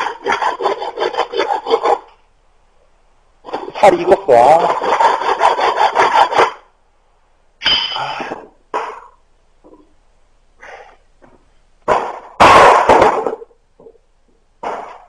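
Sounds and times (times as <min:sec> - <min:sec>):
hand tools striking wood: 0:00.0 - 0:02.1.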